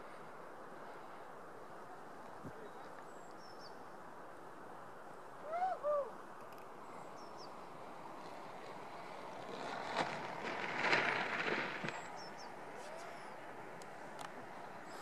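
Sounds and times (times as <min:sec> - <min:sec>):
low outdoor hiss: 0:00.0 - 0:15.0
hoot-like calls: 0:05.4 - 0:06.2.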